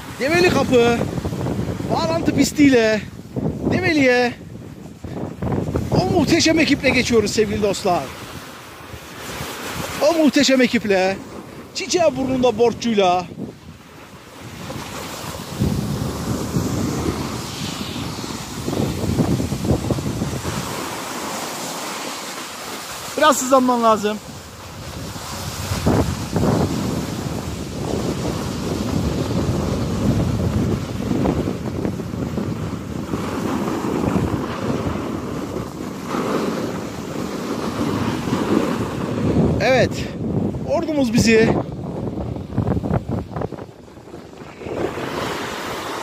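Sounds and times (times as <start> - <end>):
wind buffeting microphone: 0.0 - 46.0
snowboards scraping on snow: 11.2 - 11.7, 14.0 - 39.6, 41.8 - 46.0.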